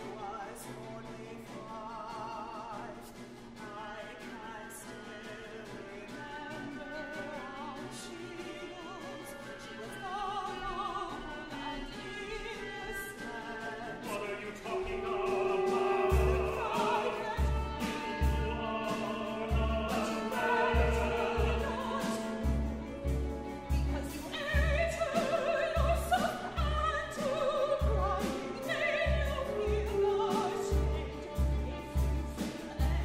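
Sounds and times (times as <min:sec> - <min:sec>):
operatic singing: 0:00.0 - 0:33.0
chamber ensemble playing: 0:14.2 - 0:24.7.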